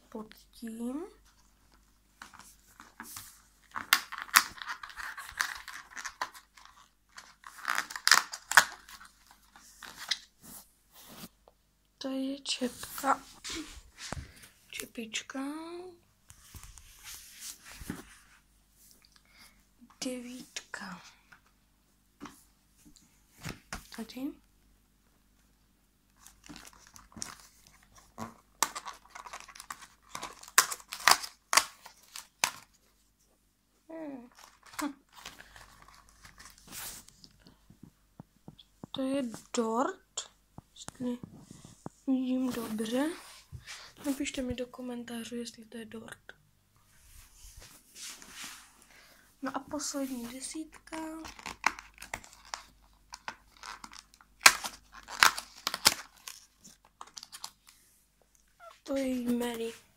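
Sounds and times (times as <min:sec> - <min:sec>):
cardboard and plastic crackling: 0:01.2 - 0:10.3, 0:26.2 - 0:32.9, 0:34.2 - 0:39.6, 0:49.5 - 0:57.8
plastic insert crinkling: 0:01.2 - 0:10.3, 0:26.1 - 0:32.9, 0:34.3 - 0:37.6, 0:49.7 - 0:57.8.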